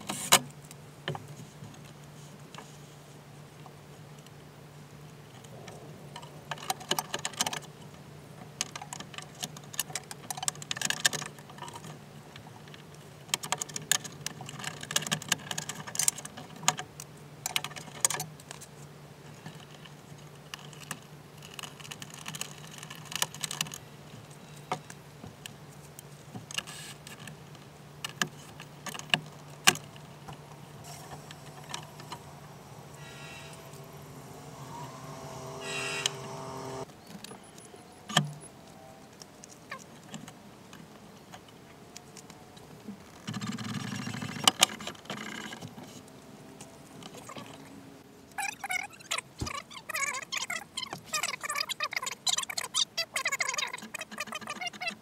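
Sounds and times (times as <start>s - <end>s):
low steady hum: 27.4s - 36.9s
rising whine: 29.4s - 36.9s.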